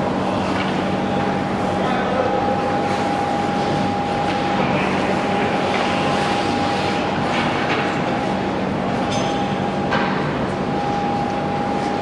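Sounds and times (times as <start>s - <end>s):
mechanical drone with hum: 0.0s - 12.0s.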